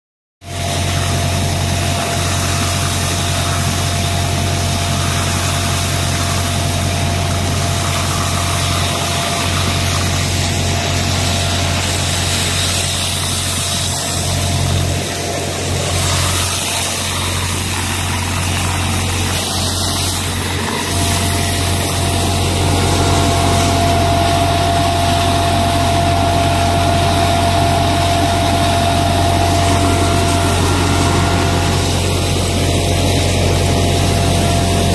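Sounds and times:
engine hum: 0.5s - 34.9s
thin machine whine: 0.5s - 34.9s
air rushing through suction hose: 11.2s - 34.9s.

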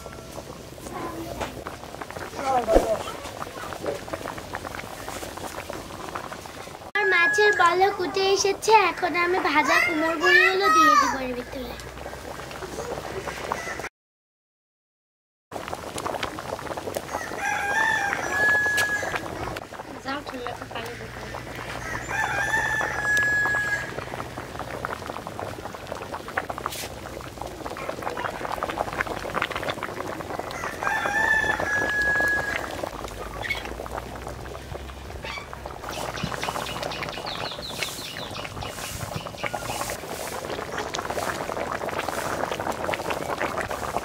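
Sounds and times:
steady background crackle: 0.0s - 13.8s, 15.5s - 44.0s
rooster crowing: 17.1s - 19.2s, 21.7s - 24.0s, 30.4s - 32.8s.

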